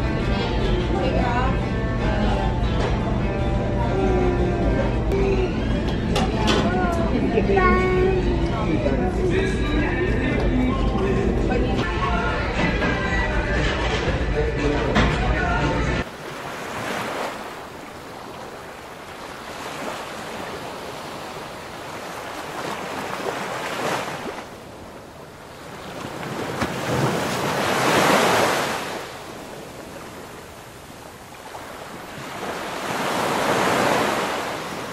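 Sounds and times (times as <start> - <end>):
ocean waves breaking on beach: 16.0 - 34.9.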